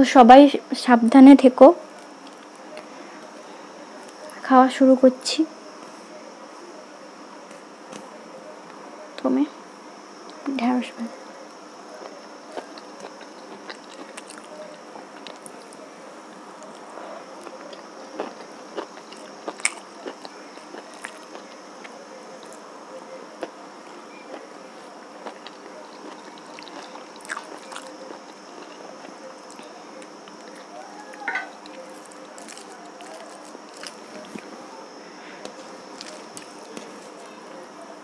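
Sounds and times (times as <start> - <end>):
person chewing with crunches: 12.0 - 15.6, 16.6 - 21.6, 25.2 - 34.6, 35.4 - 37.3.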